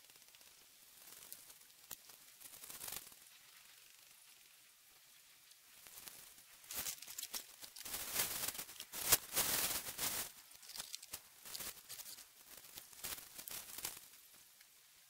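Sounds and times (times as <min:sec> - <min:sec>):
tent fabric rustling: 0:05.8 - 0:14.3.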